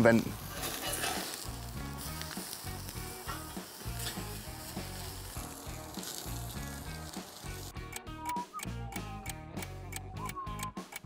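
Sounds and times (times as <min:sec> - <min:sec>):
steak sizzling on a grill: 0:00.0 - 0:07.7.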